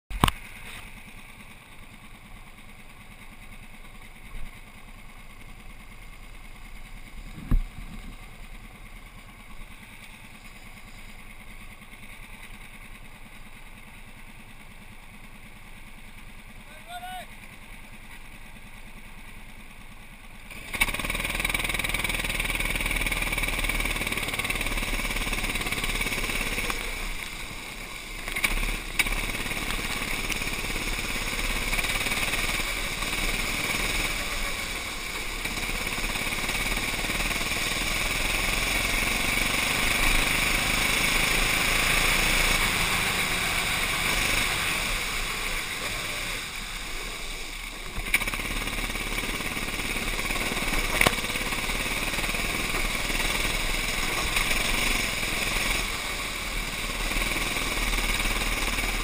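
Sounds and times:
racing kart engine: 0:00.1 - 0:59.0.

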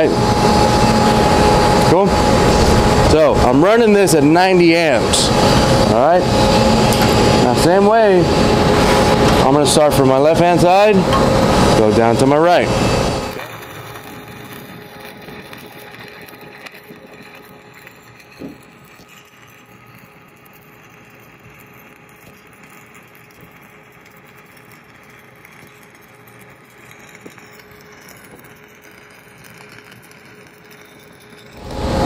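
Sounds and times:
welding arc crackling hiss: 0:00.0 - 0:32.0
welding arc pop: 0:06.9 - 0:07.4, 0:13.3 - 0:31.8.

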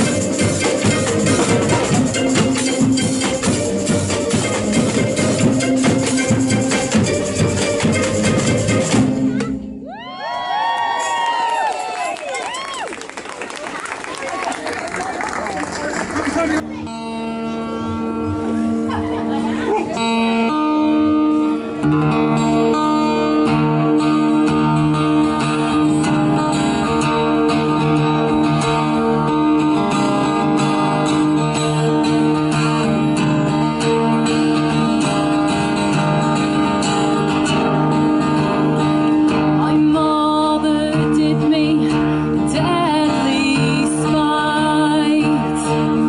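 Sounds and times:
acoustic guitar strumming: 0:00.0 - 0:09.8, 0:16.6 - 0:46.0
woman singing: 0:25.0 - 0:27.2, 0:39.6 - 0:46.0.

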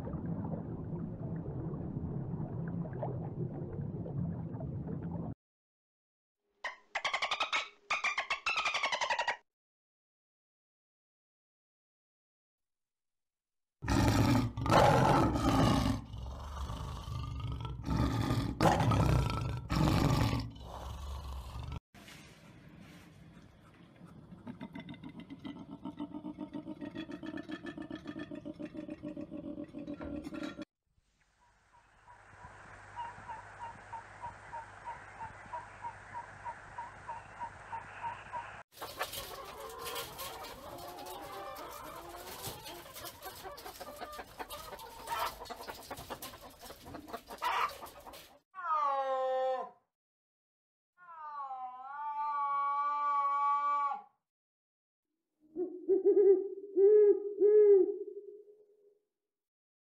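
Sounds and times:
lion roaring: 0:13.8 - 0:21.8
hens and rooster clucking: 0:32.1 - 0:49.1.

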